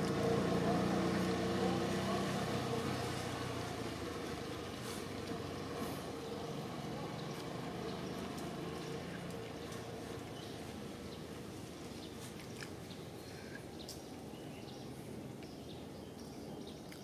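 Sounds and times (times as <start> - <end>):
vehicle engine running: 0.0 - 11.7.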